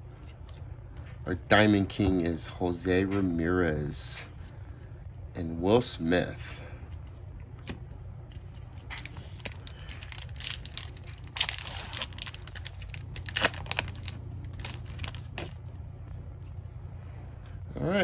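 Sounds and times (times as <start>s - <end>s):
foil wrapper tearing and crinkling: 8.4s - 15.8s.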